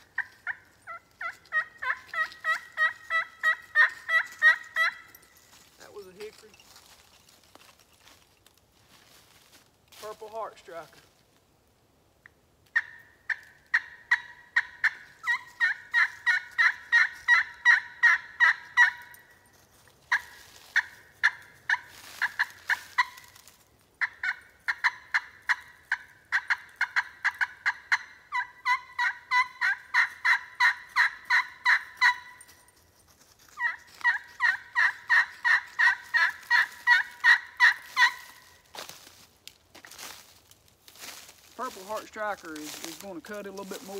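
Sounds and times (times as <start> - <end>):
turkey call yelps: 0.0 - 5.3, 12.7 - 19.3, 20.1 - 32.6, 33.4 - 38.7.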